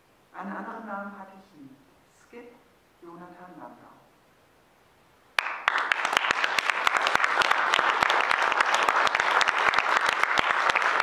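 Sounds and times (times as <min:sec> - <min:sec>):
audience applause: 0:05.4 - 0:11.0.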